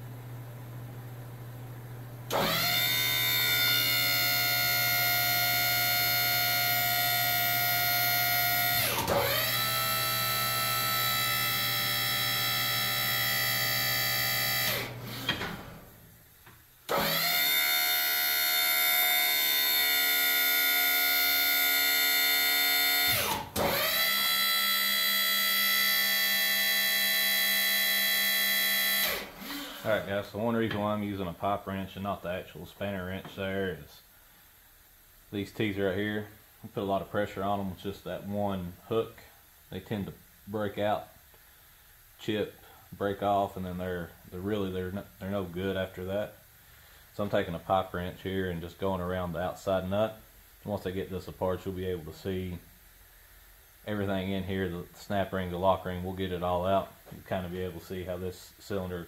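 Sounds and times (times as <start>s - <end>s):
motor whining: 2.3s - 16.0s, 16.9s - 30.1s.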